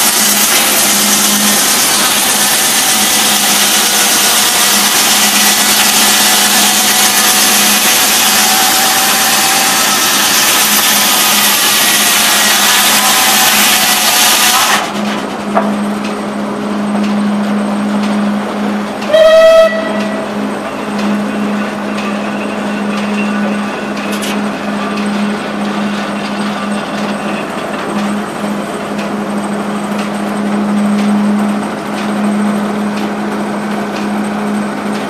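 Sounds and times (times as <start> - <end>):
circular saw cutting: 0.0 - 35.0
sawmill machinery humming: 0.0 - 35.0
steam whistle blast: 19.1 - 20.4.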